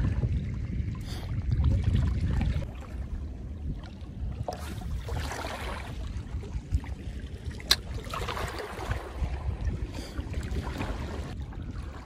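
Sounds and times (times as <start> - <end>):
wind buffeting microphone: 0.0 - 12.0
waves lapping rocky shore: 2.5 - 12.0.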